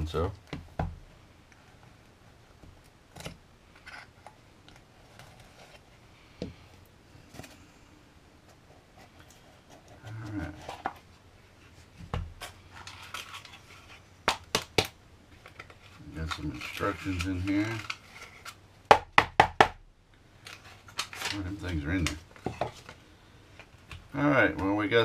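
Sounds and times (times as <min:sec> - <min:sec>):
packaging being handled: 0:12.4 - 0:18.6, 0:20.4 - 0:23.0.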